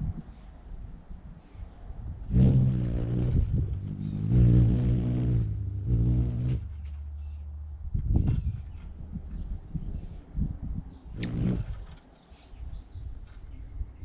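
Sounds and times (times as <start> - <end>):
thin high buzz: 2.3 - 7.1
hummingbird wings humming: 2.3 - 7.6, 11.1 - 11.7.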